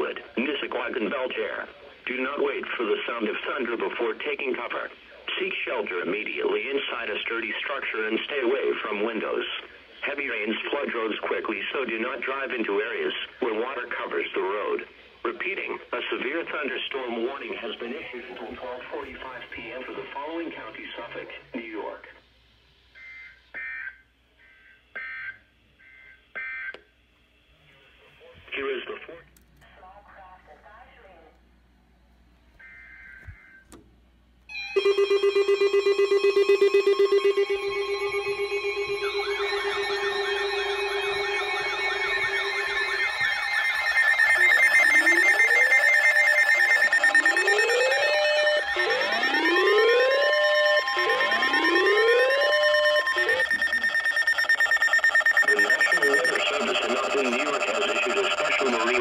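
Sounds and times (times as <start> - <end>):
pulsed beeps: 34.5 - 59.0
two-pitch digital data tones: 34.5 - 59.0
wail and yelp sirens: 34.5 - 59.0
whoop alarm: 36.6 - 56.1.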